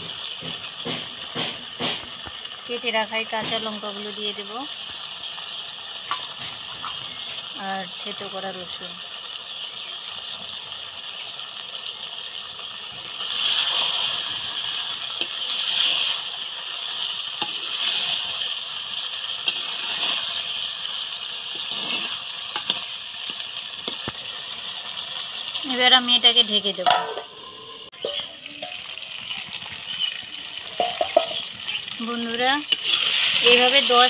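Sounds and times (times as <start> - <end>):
curry simmering and sizzling: 0.0 - 34.0
metal spatula scraping a pot: 13.2 - 16.3, 17.0 - 18.5, 19.4 - 20.6, 21.5 - 22.8, 32.7 - 34.0.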